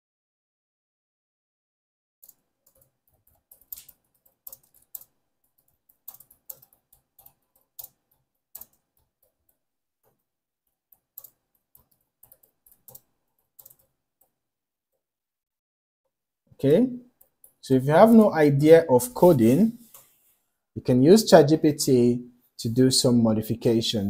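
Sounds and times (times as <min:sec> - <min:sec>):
keyboard typing: 0:02.2 - 0:14.4, 0:16.6 - 0:18.4.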